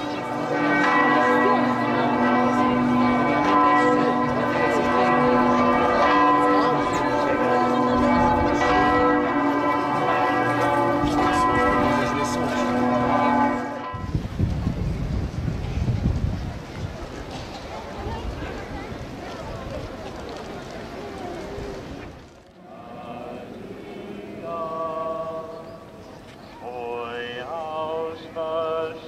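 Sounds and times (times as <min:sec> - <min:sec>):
church bells ringing: 0:00.0 - 0:14.4, 0:22.6 - 0:29.0.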